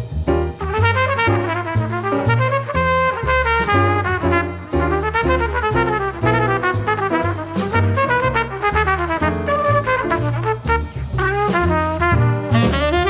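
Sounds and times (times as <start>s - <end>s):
bass line: 0.0s - 13.0s
brass instrument music: 0.6s - 13.0s.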